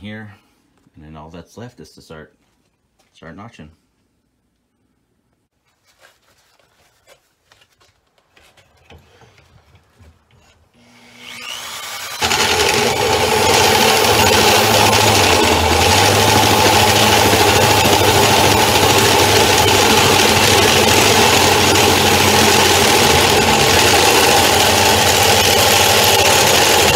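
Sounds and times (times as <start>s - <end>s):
drill cutting with hole saw: 10.8s - 26.9s.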